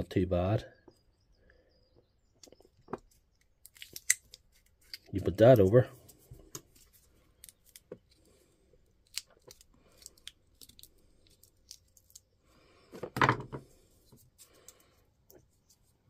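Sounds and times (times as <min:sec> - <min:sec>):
tweezers clicking and scratching: 0:09.0 - 0:12.4.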